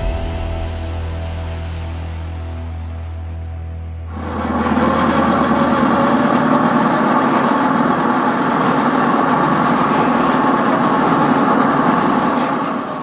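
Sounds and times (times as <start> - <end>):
electric motor and gears whining: 4.1 - 13.0.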